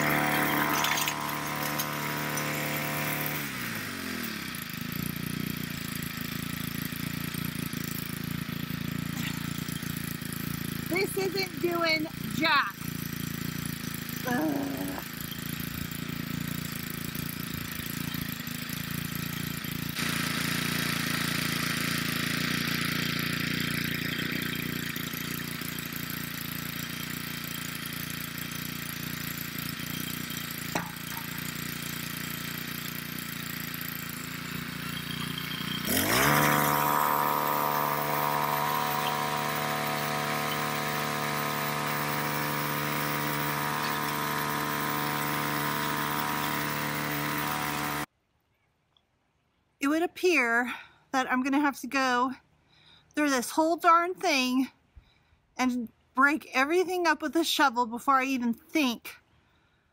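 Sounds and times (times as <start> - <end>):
tines churning clay: 0.0 - 5.7, 12.1 - 48.1
mini tiller engine running: 0.0 - 48.1.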